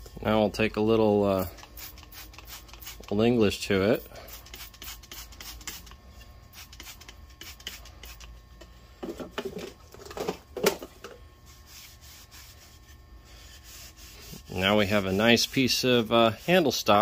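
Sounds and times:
rag rubbing wooden handle: 11.5s - 17.0s.

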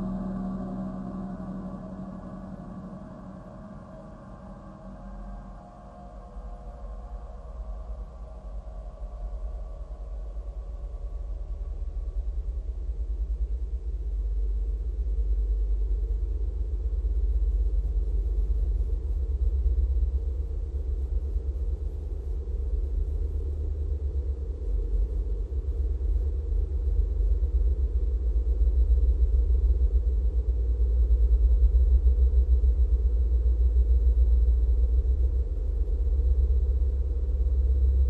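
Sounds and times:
deep electronic drone: 0.0s - 38.0s.

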